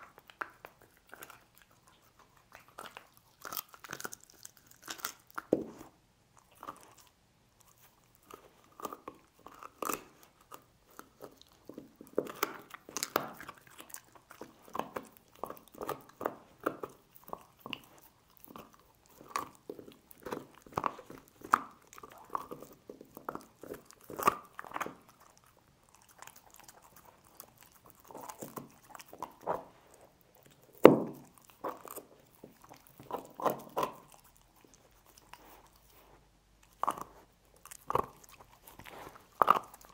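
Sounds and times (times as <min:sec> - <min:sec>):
dog chewing on bone: 0:00.0 - 0:39.9
bone cracking: 0:08.8 - 0:29.8.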